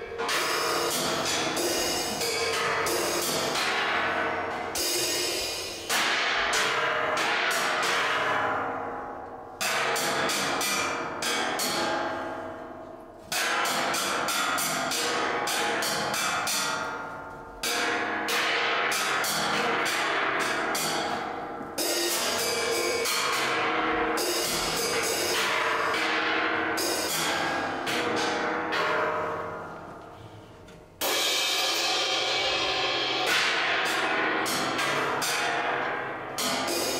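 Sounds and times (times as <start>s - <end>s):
cymbal crash ringing: 0.1s - 6.5s, 31.0s - 36.9s
drums and cymbals played: 31.0s - 36.9s.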